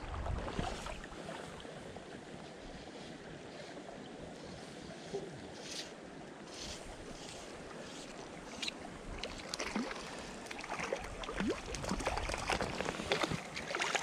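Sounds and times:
light water splashing: 0.0 - 1.9, 4.8 - 14.0
creek water running: 0.0 - 14.0
fly line squeaking through rod guides: 6.5 - 8.8.

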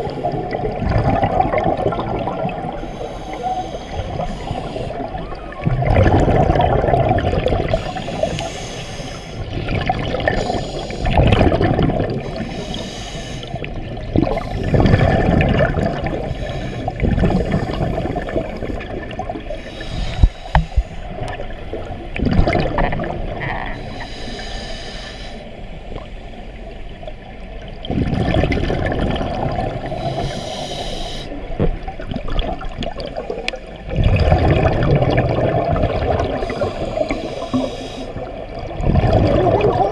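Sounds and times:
exhaled bubbles gurgling underwater: 0.0 - 39.9.

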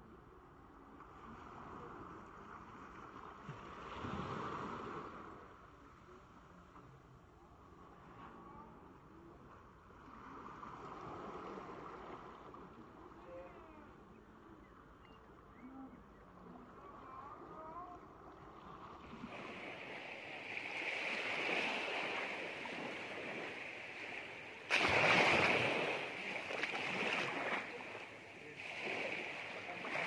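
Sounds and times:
sea waves washing onto beach: 19.0 - 30.0.

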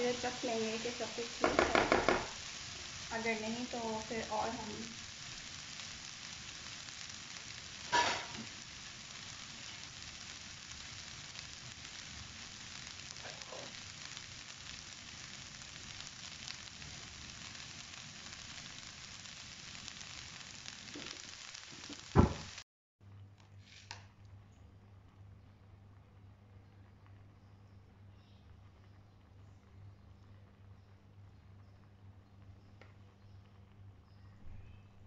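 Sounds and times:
food sizzling in a wok: 0.0 - 22.6, 23.6 - 24.0.

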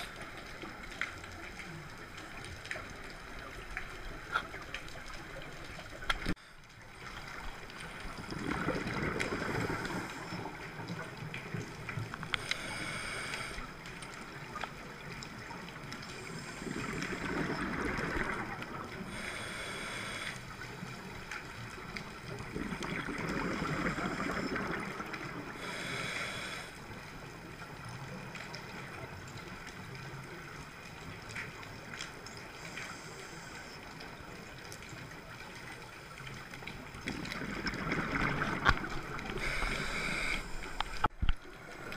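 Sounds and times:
exhaled bubbles rushing: 7.2 - 11.7, 16.3 - 19.1, 22.2 - 25.6, 36.9 - 41.9
regulator inhale hiss: 12.3 - 13.7, 19.1 - 20.5, 25.6 - 26.8, 39.3 - 41.1.

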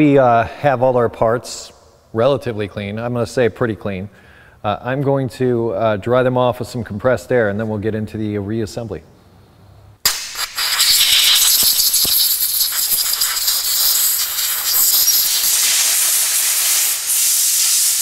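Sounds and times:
air blow gun hissing: 10.1 - 18.0.

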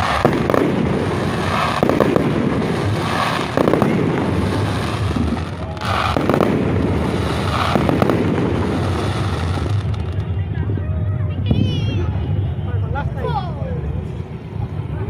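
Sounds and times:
firework shells bursting: 0.0 - 10.3
sharp firework pops: 0.0 - 10.3.

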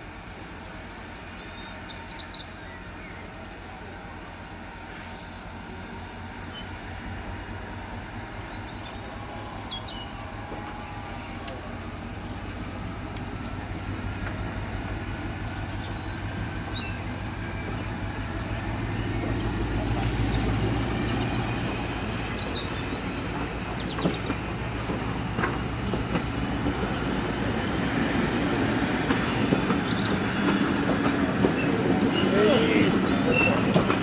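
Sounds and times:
diesel locomotive engine pulling train: 0.0 - 34.0
train running gear clicks: 9.8 - 34.0.

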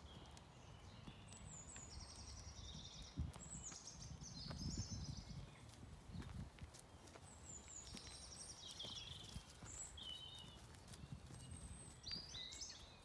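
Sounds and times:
songbirds singing: 0.0 - 13.0
footsteps on gravel: 2.6 - 13.0.

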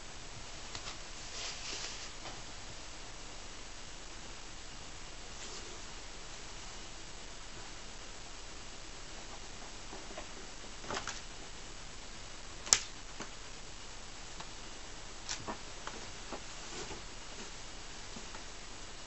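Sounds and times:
steady hiss: 0.0 - 19.0
cats scrabbling at a rug: 9.2 - 11.4, 15.2 - 18.6.

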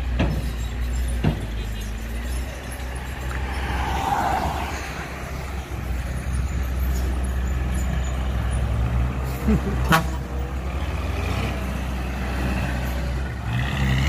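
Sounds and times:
diesel truck engine rumbling: 0.0 - 14.0
motorbike passing: 2.4 - 8.0.

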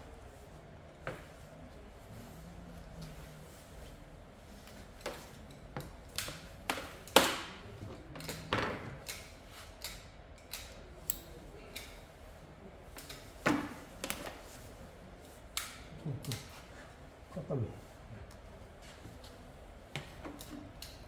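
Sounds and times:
hand tools clicking and snapping: 8.2 - 12.0.

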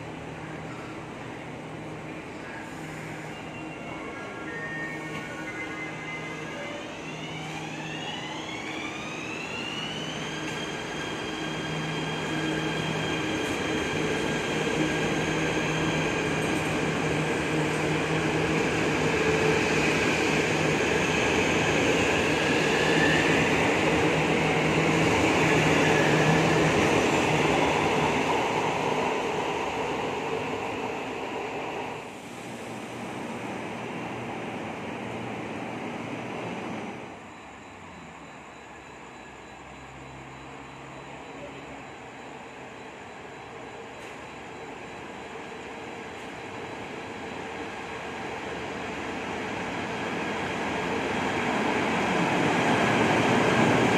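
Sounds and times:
train wheels rumbling on rails: 9.2 - 37.0.

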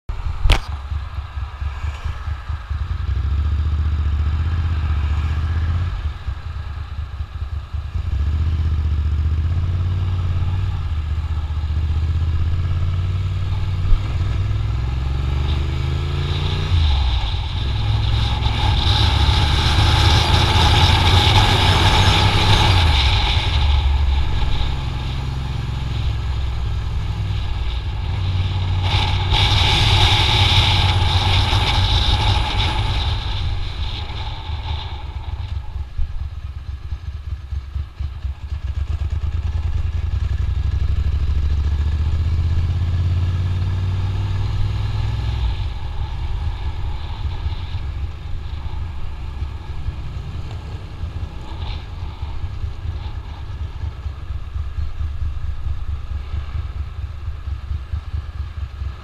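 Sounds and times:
motorcycle engine running: 0.0 - 59.0
wind rumbling on microphone: 0.0 - 59.0.

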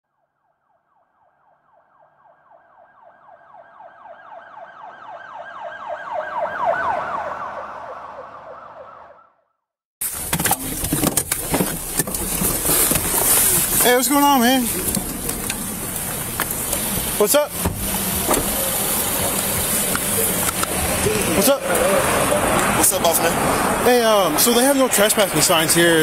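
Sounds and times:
electronic siren yelping: 0.3 - 9.4.

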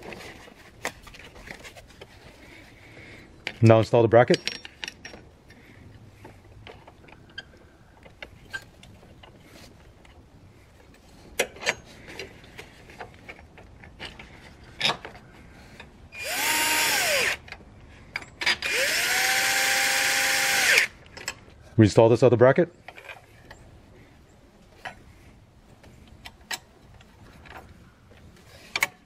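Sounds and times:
cordless drill motor: 16.2 - 17.4, 18.6 - 20.9.

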